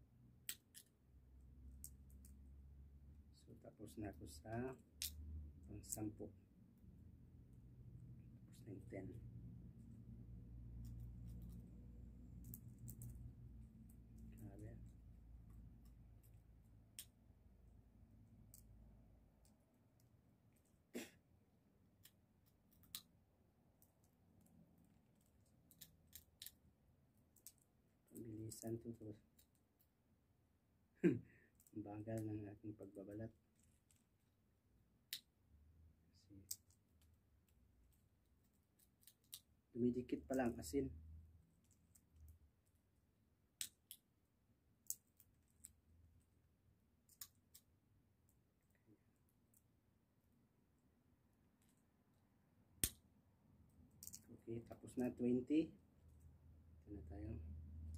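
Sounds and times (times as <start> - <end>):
sunflower seed shells cracking: 25.6 - 26.6, 38.7 - 39.5, 53.9 - 54.3.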